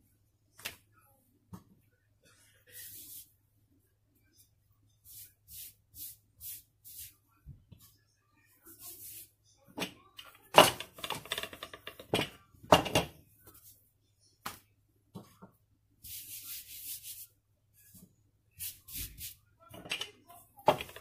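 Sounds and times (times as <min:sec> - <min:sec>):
hand brushing flour on dough: 0:02.3 - 0:03.4, 0:04.2 - 0:08.0, 0:08.6 - 0:09.4, 0:16.0 - 0:19.5.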